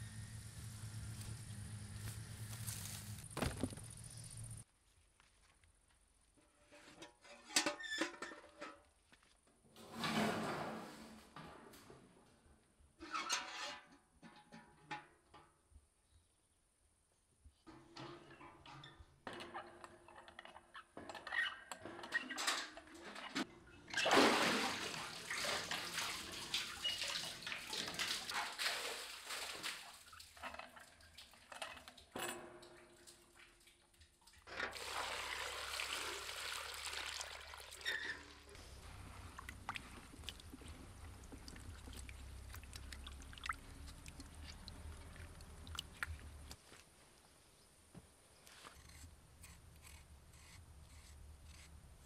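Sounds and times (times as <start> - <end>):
metal bucket knocks and creaks: 6.8 - 8.9, 9.8 - 12.0, 13.0 - 15.8, 17.7 - 24.1, 30.3 - 33.6
water pouring and splashing: 23.9 - 46.6
water sloshing in a bowl: 23.9 - 46.6.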